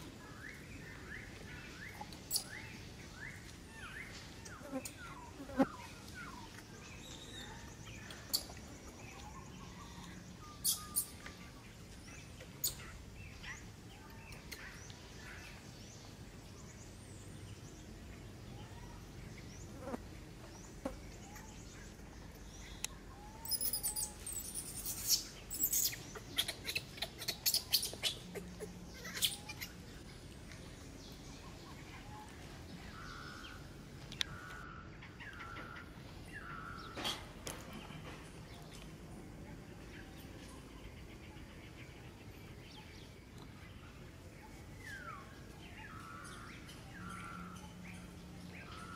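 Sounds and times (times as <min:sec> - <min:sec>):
bird chirps: 0:00.3 - 0:11.4, 0:21.2 - 0:29.8.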